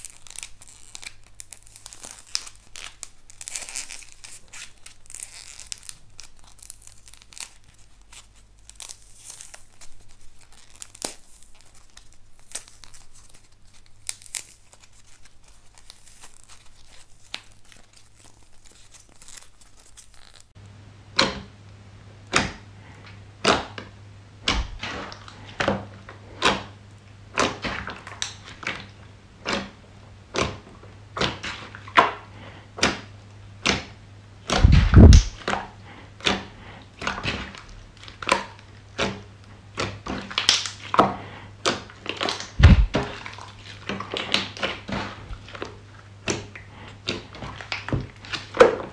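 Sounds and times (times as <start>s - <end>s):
soft crackling and tearing: 0.0s - 20.6s, 34.4s - 48.9s
slime popping: 34.5s - 35.4s, 42.1s - 43.5s.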